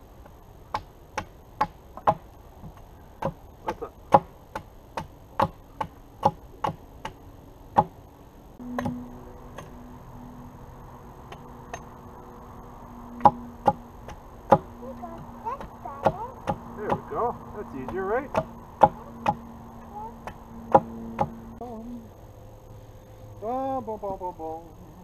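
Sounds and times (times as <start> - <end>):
hatchet chopping wooden pole: 0.7 - 7.2, 13.2 - 14.7, 15.6 - 17.1, 20.2 - 21.3.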